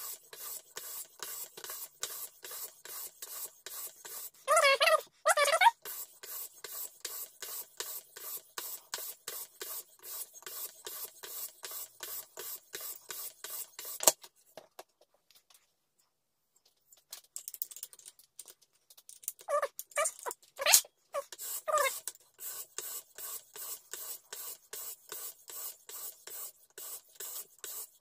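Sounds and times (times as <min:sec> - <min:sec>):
faint handling sounds: 0:14.2 - 0:21.3.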